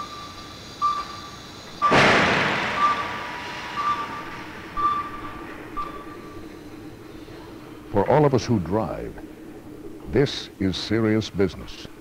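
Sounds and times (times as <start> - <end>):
high warning beep: 0.0 - 6.8
loud crash: 1.9 - 5.7.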